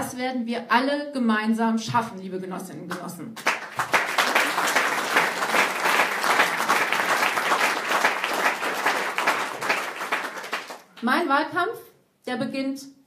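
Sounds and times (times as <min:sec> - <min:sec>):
audience applauding: 0:03.4 - 0:10.9.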